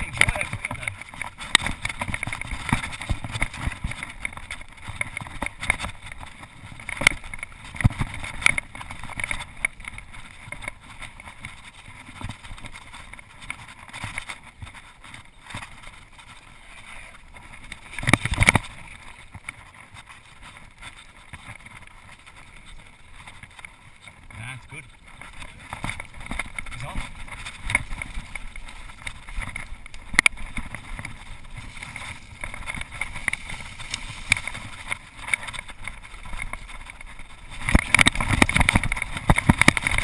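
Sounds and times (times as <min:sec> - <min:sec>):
mountain bike rattling over trail: 0:00.0 - 0:40.0.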